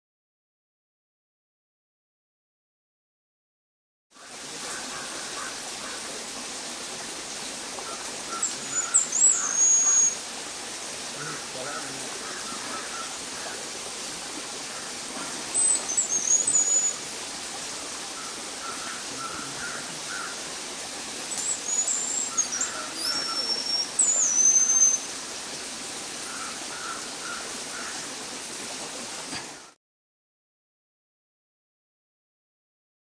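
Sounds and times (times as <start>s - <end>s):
steady hiss: 4.2s - 29.8s
thrush high whistled notes: 23.1s - 25.1s.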